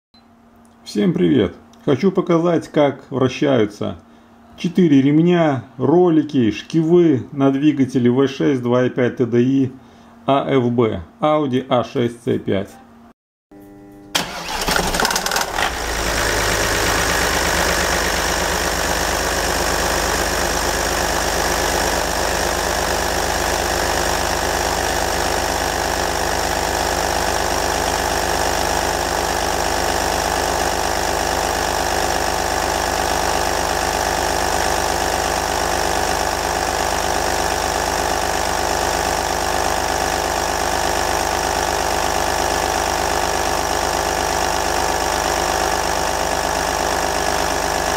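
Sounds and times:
diesel engine starting and idling: 0:14.1 - 0:47.9.

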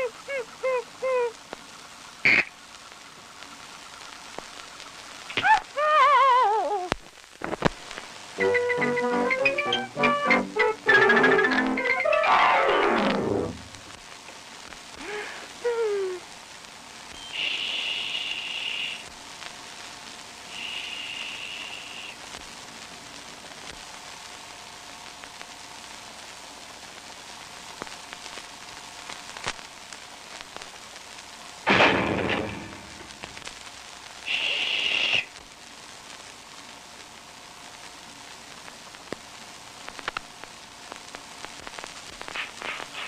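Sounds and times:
film soundtrack hiss: 0:00.0 - 0:43.0
loud falling burst: 0:08.4 - 0:13.8, 0:31.6 - 0:33.4
high hissing sounds: 0:17.1 - 0:19.2, 0:20.4 - 0:22.4, 0:34.2 - 0:35.4, 0:42.0 - 0:43.0.

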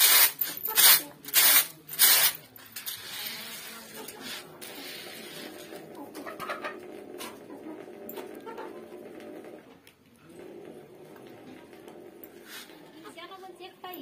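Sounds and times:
grain scratching on tray: 0:03.0 - 0:05.9, 0:12.4 - 0:12.8.

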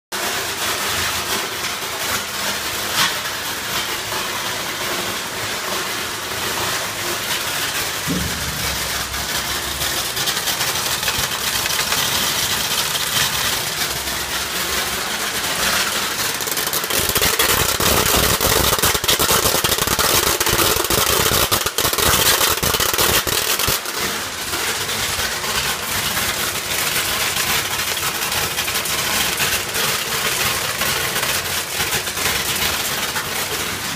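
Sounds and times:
rapid clicks of kernels: 0:00.2 - 0:33.9
thump: 0:08.1 - 0:10.4.

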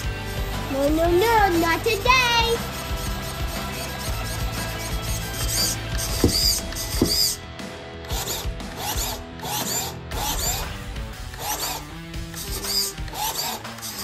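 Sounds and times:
background music: 0:00.0 - 0:14.0
servo whirring bursts: 0:02.6 - 0:07.4, 0:08.0 - 0:14.0.

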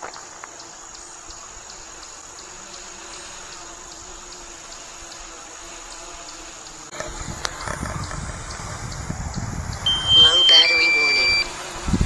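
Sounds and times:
insect chirring: 0:00.0 - 0:12.0
faint drone hum: 0:06.6 - 0:12.0.

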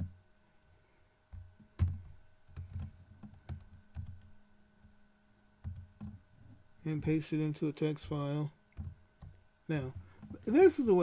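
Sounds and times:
keyboard keystrokes: 0:01.8 - 0:04.3.

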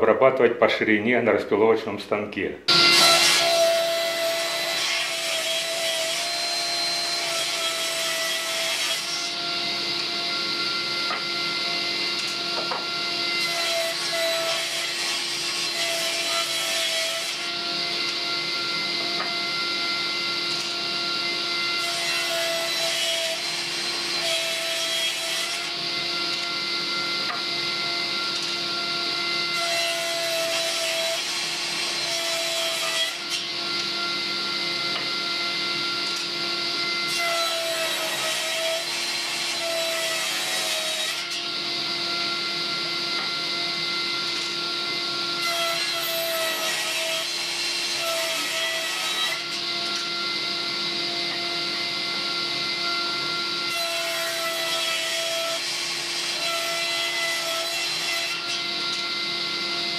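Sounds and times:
saw blade ripping wood: 0:02.7 - 0:09.3
table saw motor hum: 0:02.7 - 0:59.9.

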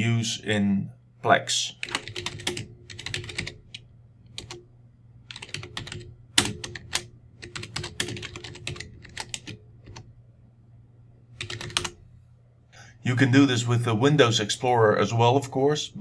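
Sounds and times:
typing on computer keyboard: 0:01.8 - 0:04.6, 0:05.2 - 0:10.1, 0:11.4 - 0:12.0.

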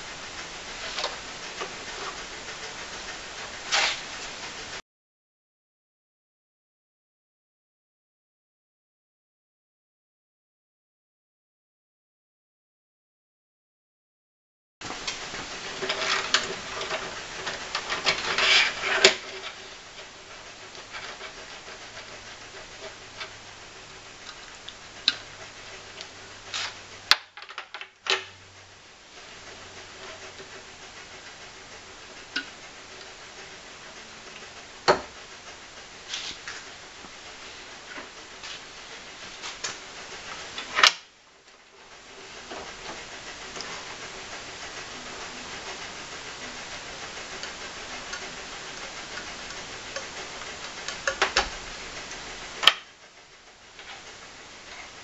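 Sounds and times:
faint steady hum: 0:00.0 - 0:04.8, 0:14.8 - 0:55.0
gloved hands rustling and scraping: 0:14.8 - 0:20.2, 0:36.0 - 0:40.6
sharp clicks and knocks: 0:47.3 - 0:53.0.

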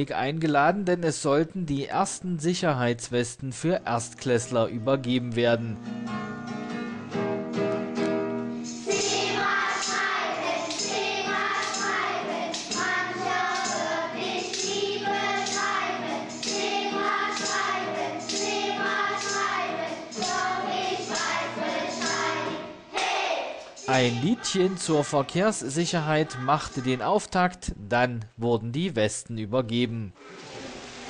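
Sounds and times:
tambourines: 0:08.6 - 0:22.4
shakers: 0:08.6 - 0:22.6, 0:23.2 - 0:25.1
children singing: 0:08.8 - 0:27.3.

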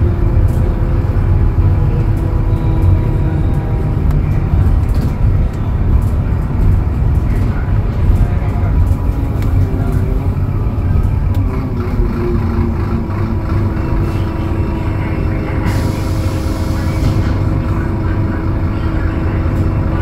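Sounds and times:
bus engine rumble with whine: 0:00.0 - 0:20.0.

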